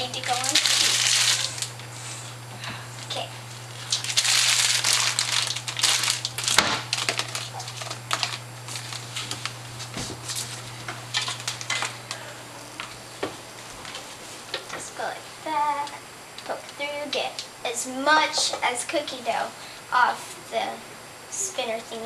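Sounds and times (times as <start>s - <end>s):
packaging crinkling: 0.0s - 1.9s, 3.5s - 12.0s.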